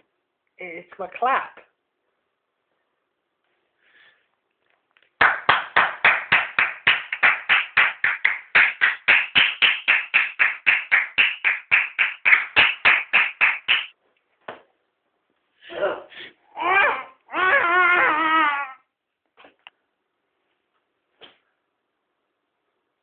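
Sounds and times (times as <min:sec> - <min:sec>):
person clapping hands fast: 0:05.2 - 0:14.0.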